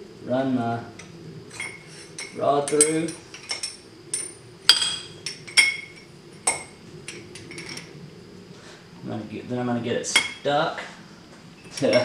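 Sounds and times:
metal rod clinking: 1.6 - 7.8, 11.7 - 12.0.

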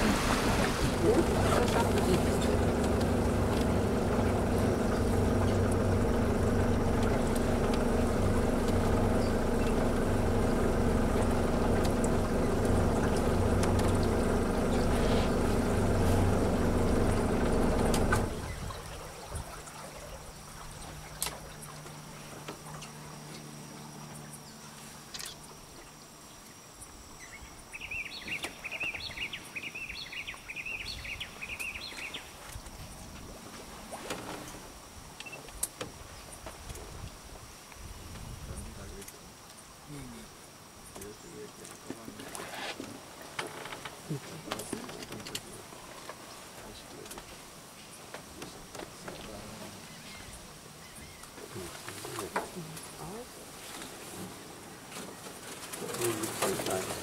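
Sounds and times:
boat engine running: 0.0 - 25.8, 41.0 - 46.0, 48.3 - 57.0
water: 0.0 - 57.0.

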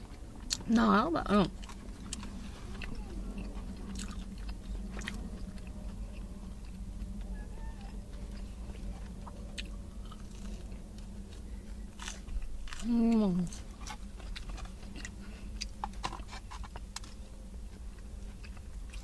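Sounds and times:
chewing crispy food: 0.0 - 19.0
low hum: 0.0 - 19.0.

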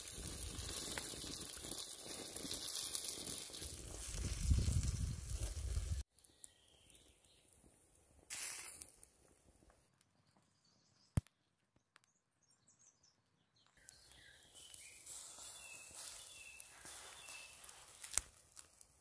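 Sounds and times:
embers popping: 0.0 - 10.1, 13.8 - 19.0
faint bird chirps: 6.2 - 7.6, 10.1 - 17.7.

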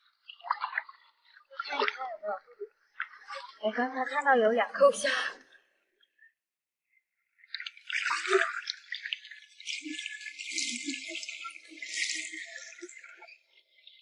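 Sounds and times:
seawater splashing and swishing: 7.5 - 14.0
sharp water splash: 7.6 - 13.2.

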